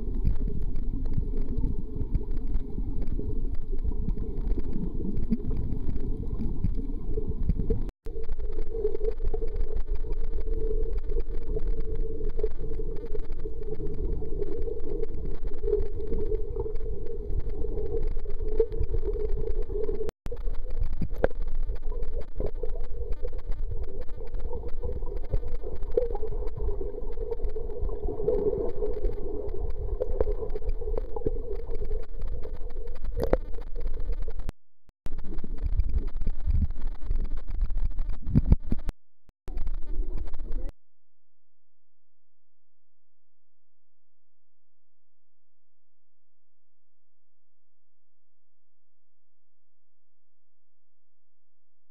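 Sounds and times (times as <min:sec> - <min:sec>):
muffled underwater rumble: 0:00.0 - 0:34.5, 0:35.1 - 0:38.9, 0:39.5 - 0:40.7.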